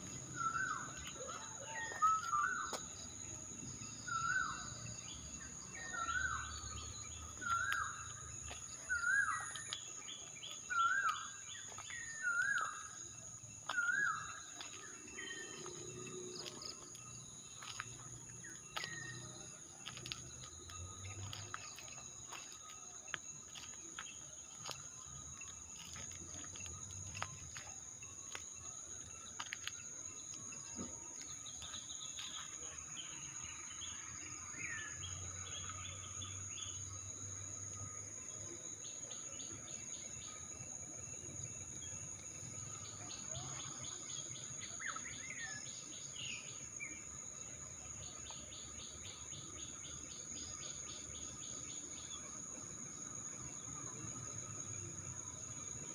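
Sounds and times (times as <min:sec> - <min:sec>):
birds whistling and chirping: 0:00.0 - 0:28.4.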